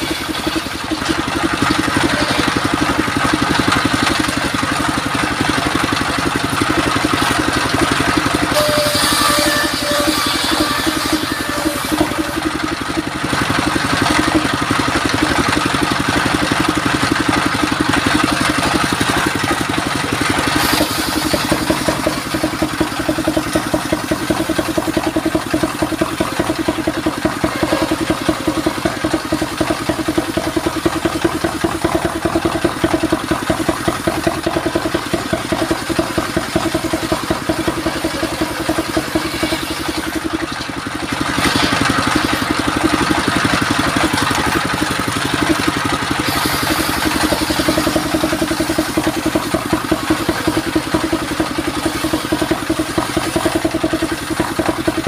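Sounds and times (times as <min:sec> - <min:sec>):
sawmill engine running: 0:00.0 - 0:55.0.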